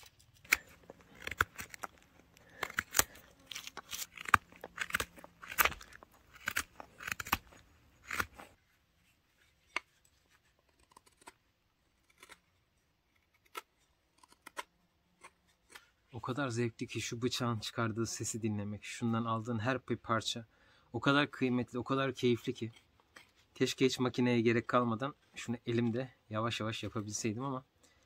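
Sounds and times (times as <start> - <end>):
knife cutting wood shavings: 0.0 - 8.6.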